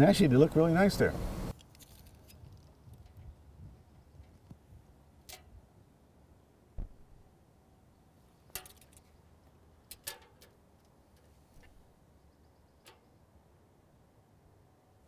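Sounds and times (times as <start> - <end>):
dull thump: 6.8 - 7.2
tape measure clicks and rattles: 8.5 - 9.1, 9.8 - 11.7.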